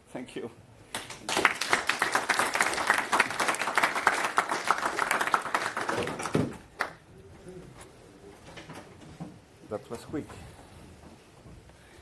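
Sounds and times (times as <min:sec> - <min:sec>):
audience applauding: 0:00.9 - 0:07.0.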